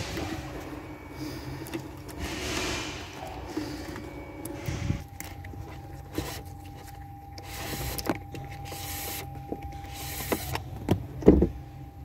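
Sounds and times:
steady low hum: 0:00.0 - 0:12.0
cables rustling against plastic: 0:03.4 - 0:10.6.

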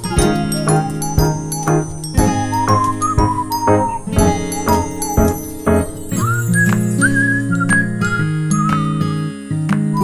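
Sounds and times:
bass line: 0:00.0 - 0:06.8
tinkling notes: 0:00.0 - 0:07.6
whistled melody: 0:00.0 - 0:10.0.

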